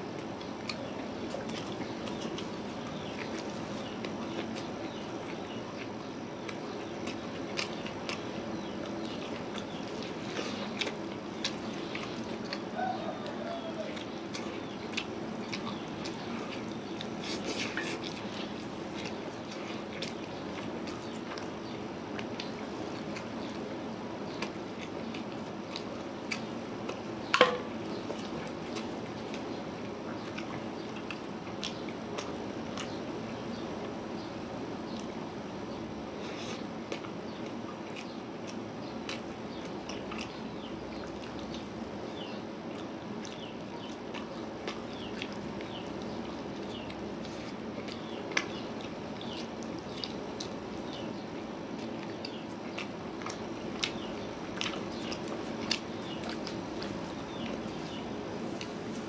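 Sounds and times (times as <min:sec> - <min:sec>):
person chewing food: 0:00.0 - 0:34.1, 0:34.9 - 0:59.0
steady low hum: 0:00.0 - 0:59.0
person eating chicken: 0:00.3 - 0:23.7.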